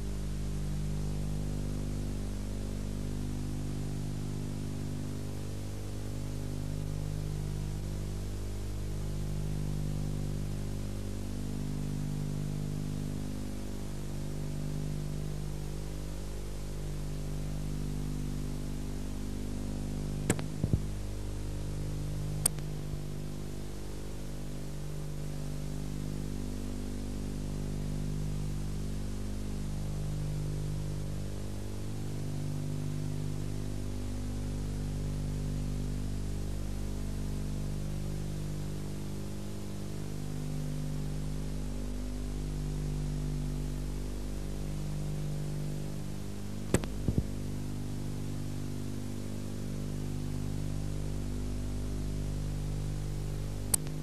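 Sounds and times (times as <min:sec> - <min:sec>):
electrical hum with hiss: 0:00.0 - 0:54.0
sharp clicks: 0:20.3 - 0:20.9, 0:22.4 - 0:22.7, 0:46.7 - 0:47.3, 0:53.7 - 0:54.0.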